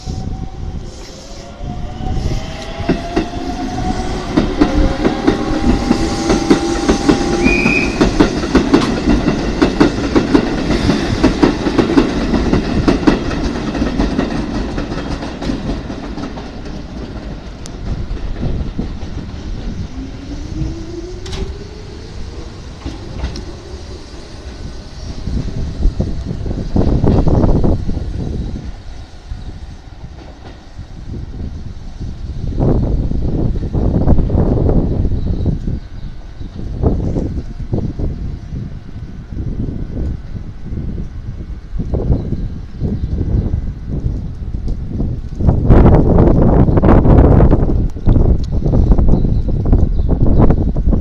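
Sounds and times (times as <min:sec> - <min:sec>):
second train motor whine: 0:00.0 - 0:08.7, 0:19.6 - 0:28.7
train wheels clattering: 0:02.5 - 0:24.7
train motors whining: 0:18.5 - 0:27.8.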